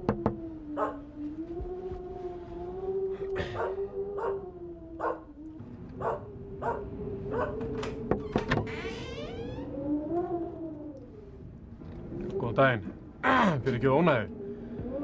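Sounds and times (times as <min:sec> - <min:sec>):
dog barking: 0:00.8 - 0:01.0, 0:03.4 - 0:04.4, 0:05.0 - 0:05.3, 0:06.0 - 0:07.6
wooden door creaking open: 0:07.4 - 0:09.9.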